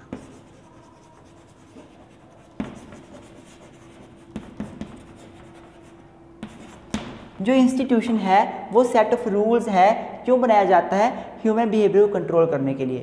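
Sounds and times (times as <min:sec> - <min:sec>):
chalk scratching on chalkboard: 0:00.0 - 0:07.0
chalk tapping on board: 0:00.0 - 0:07.2.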